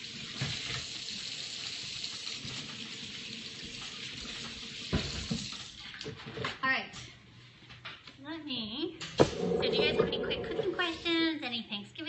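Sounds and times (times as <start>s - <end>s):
faucet running: 0.0s - 6.0s
thump: 9.2s - 10.1s.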